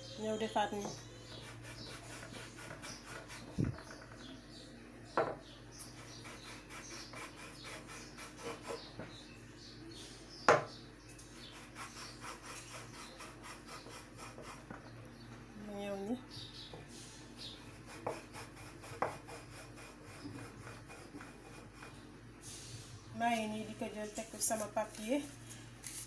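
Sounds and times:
cup knocking on wooden board: 5.2s - 5.4s, 10.5s - 10.7s.

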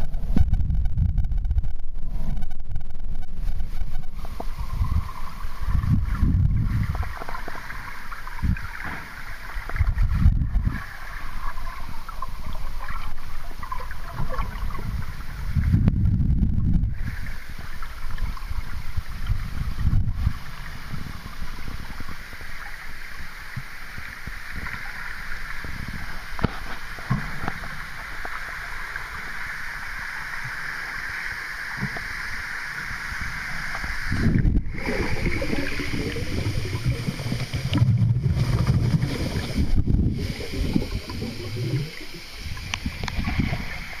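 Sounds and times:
low rumbles and bumps: 0.0s - 5.1s, 5.7s - 7.0s, 14.8s - 17.0s, 36.6s - 40.2s
steady hiss: 1.9s - 44.0s
muffled underwater sloshing: 2.0s - 44.0s.

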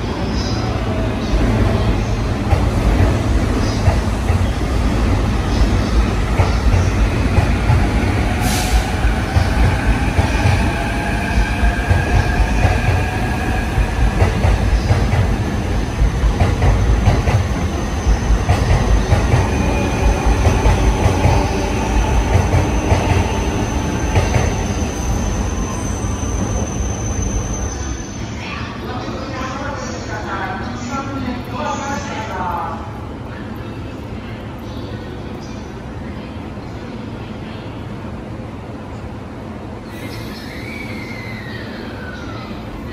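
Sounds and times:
train wheels rumbling: 0.0s - 28.4s
wheels squealing on rails: 19.3s - 28.4s, 39.8s - 42.9s.

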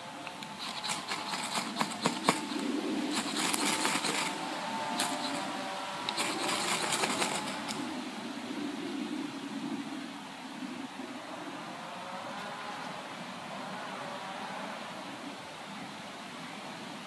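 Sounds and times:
ferro rod scraped with striker: 0.4s - 4.4s, 5.0s - 5.5s, 6.1s - 7.8s.

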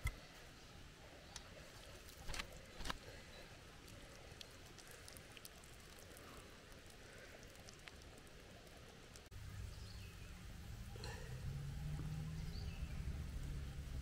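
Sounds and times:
faint steady hiss: 0.0s - 14.0s
small scattered ticks: 1.3s - 9.3s.

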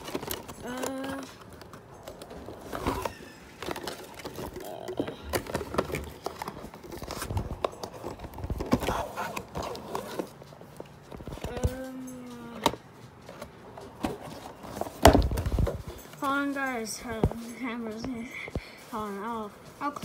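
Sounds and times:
person humming: 0.6s - 1.4s.

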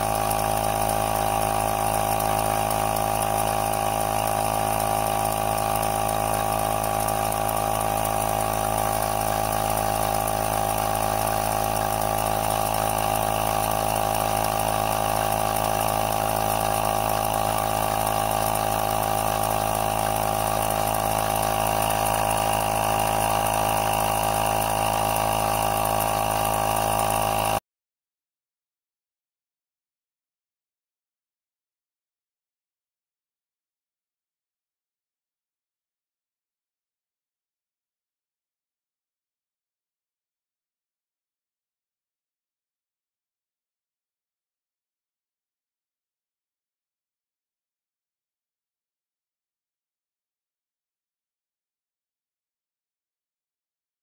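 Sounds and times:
air pump humming: 0.0s - 27.6s.

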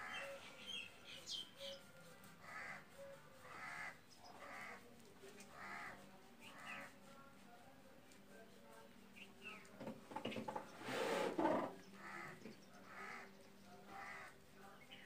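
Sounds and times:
small birds chirping: 0.0s - 4.8s, 9.1s - 10.9s, 11.7s - 15.0s.

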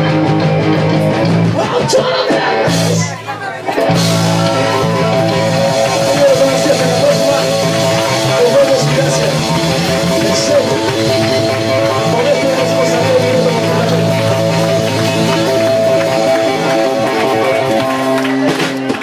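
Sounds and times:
bass guitar: 0.0s - 19.0s
drum kit: 0.0s - 19.0s
electric guitar: 0.0s - 19.0s.

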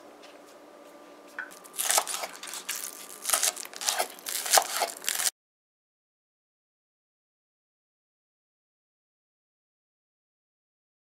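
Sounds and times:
knife slicing on cutting board: 1.8s - 5.3s.

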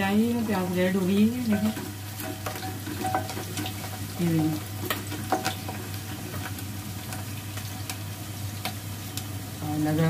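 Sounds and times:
onions sizzling in oil: 0.0s - 10.0s
spoon scraping pot: 1.3s - 6.6s.

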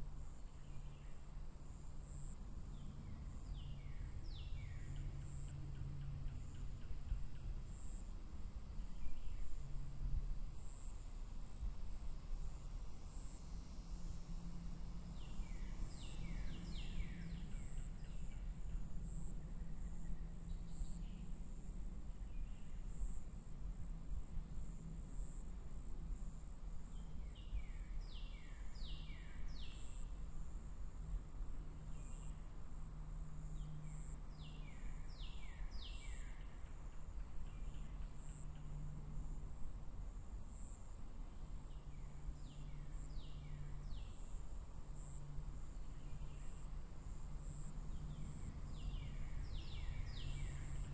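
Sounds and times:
low hum and rumble: 0.0s - 50.9s
bird singing: 2.1s - 8.0s, 15.2s - 21.3s, 26.9s - 30.1s, 31.8s - 32.5s, 33.4s - 38.8s, 41.7s - 44.3s, 45.8s - 46.7s, 47.4s - 50.9s
insects chirping: 12.6s - 50.9s.

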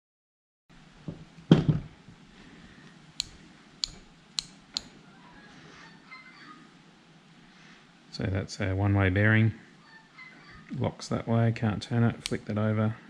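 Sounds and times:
sharp clicks of reel parts: 3.2s - 5.0s.

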